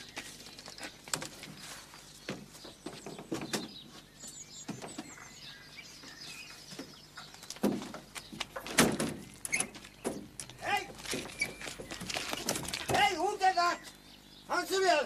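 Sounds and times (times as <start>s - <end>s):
rustles and light knocks: 0.0s - 5.4s, 6.0s - 13.2s
birds chirping faintly: 0.0s - 15.0s.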